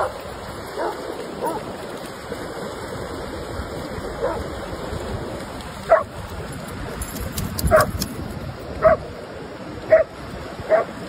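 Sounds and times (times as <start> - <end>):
dog barking: 0.0 - 1.7, 4.2 - 4.4, 5.9 - 6.1, 7.7 - 8.0, 8.8 - 9.0, 9.9 - 10.1, 10.7 - 11.0
surf: 0.0 - 11.0.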